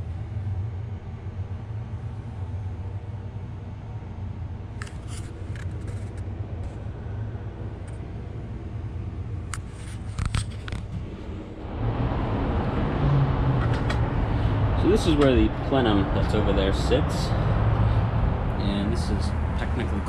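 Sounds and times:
low background rumble: 0.0 - 20.0
light clicks and scrapes: 4.8 - 6.8, 9.5 - 11.0.

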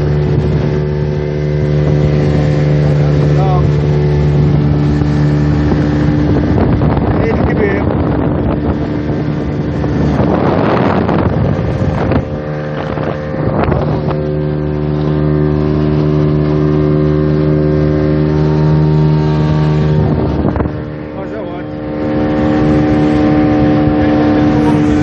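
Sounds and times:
boat engine running: 0.0 - 25.0
wind buffeting microphone: 0.0 - 25.0.

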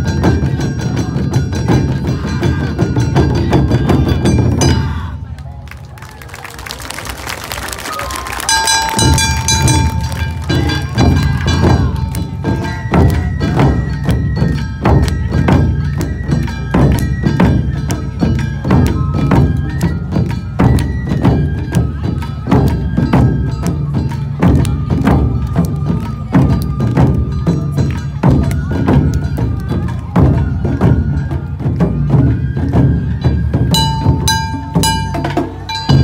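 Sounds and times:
taiko drums beating: 0.0 - 5.4, 8.0 - 36.0
high melody line: 8.4 - 16.7, 33.2 - 36.0.

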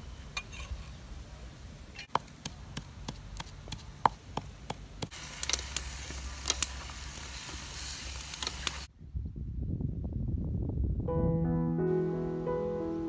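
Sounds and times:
pestle pounding in clay mortar: 2.1 - 5.2
food frying in a wok: 5.1 - 8.9.

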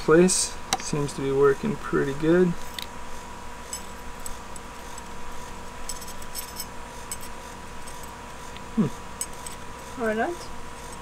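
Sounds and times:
metal pick clicking and scraping: 3.7 - 9.8.

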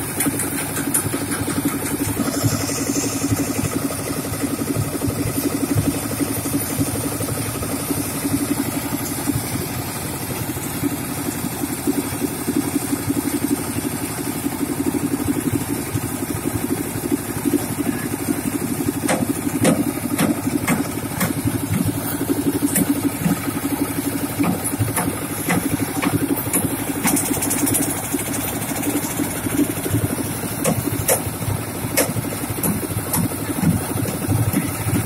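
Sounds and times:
concrete mixer engine humming: 0.0 - 35.0
sharp knocks: 19.1 - 21.9, 32.0 - 34.8.

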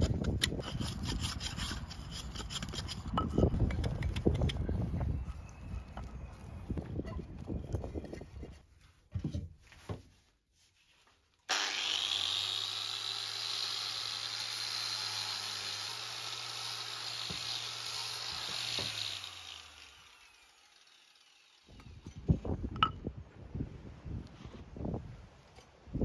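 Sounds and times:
angle grinder sanding wood: 11.5 - 22.0.

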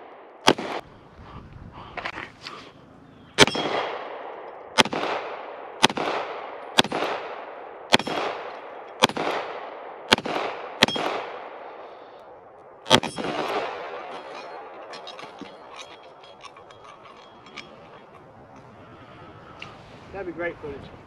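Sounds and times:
pistol shots with echo: 0.0 - 0.8, 3.4 - 12.1, 12.8 - 14.8.

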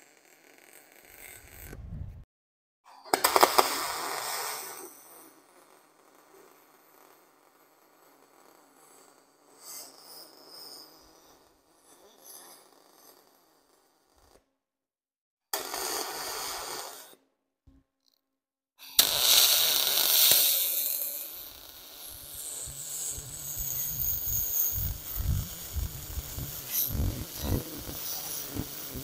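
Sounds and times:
low uneven rumble: 1.5 - 2.2, 22.2 - 29.0
welding arc hissing and crackling: 19.0 - 29.0.

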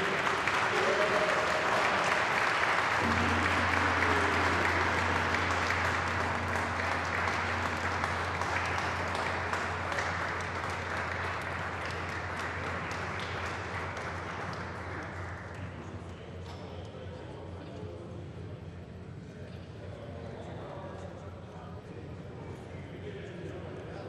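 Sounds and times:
group applauding: 0.0 - 15.9
gong struck and ringing: 3.0 - 14.3.

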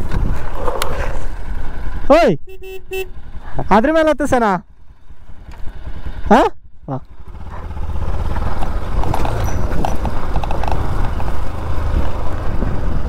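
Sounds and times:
motorcycle engine low rumble: 0.0 - 13.0
clicks and knocks over stones: 8.4 - 11.3.

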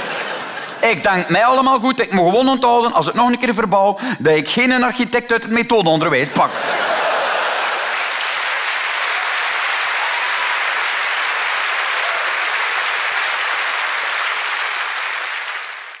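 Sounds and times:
audience applauding: 6.7 - 16.0.

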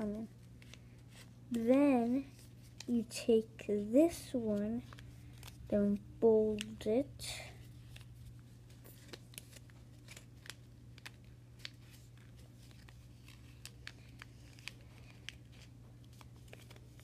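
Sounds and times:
paper rustling and creasing: 0.0 - 17.0.

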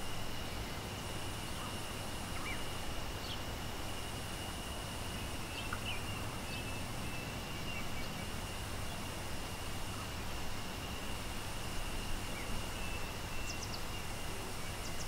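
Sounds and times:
bird chirps: 1.6 - 3.4, 12.3 - 15.0.

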